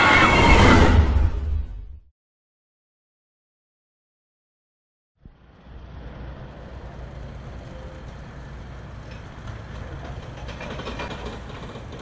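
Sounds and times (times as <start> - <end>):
roller coaster rail rumble: 5.3 - 12.0.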